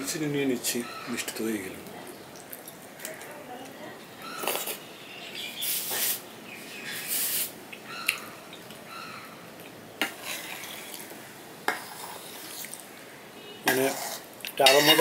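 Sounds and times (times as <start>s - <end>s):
person slurping and eating: 10.0s - 11.1s, 11.7s - 12.8s, 13.7s - 15.0s.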